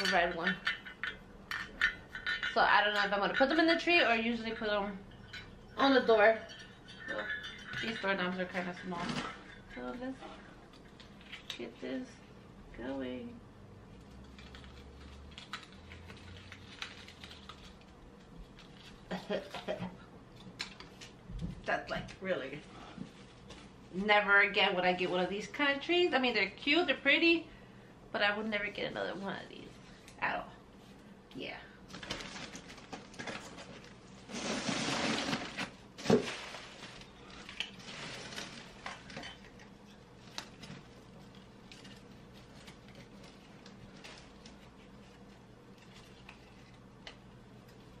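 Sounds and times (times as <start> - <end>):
artificial tree branches rustling: 32.0 - 39.1.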